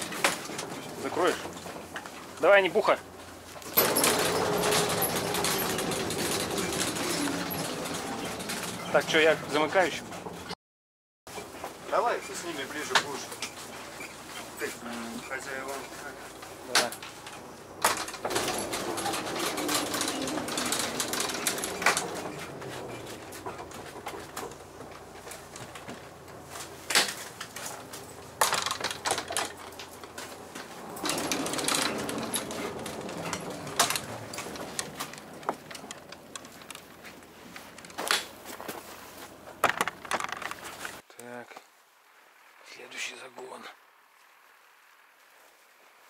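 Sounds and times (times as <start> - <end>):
knocks and clatter in vehicle cabin: 16.4 - 36.9.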